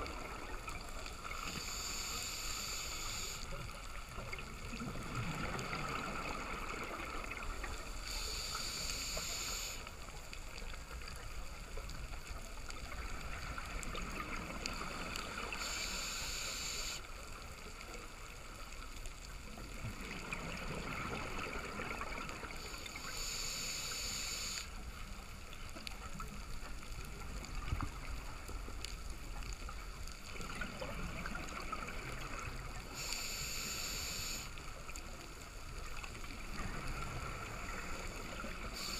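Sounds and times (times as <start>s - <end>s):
underwater rumble: 0.0s - 38.9s
regulator inhalation hiss: 1.2s - 3.7s, 8.0s - 10.0s, 15.5s - 17.1s, 22.6s - 24.8s, 32.9s - 34.6s, 38.6s - 38.9s.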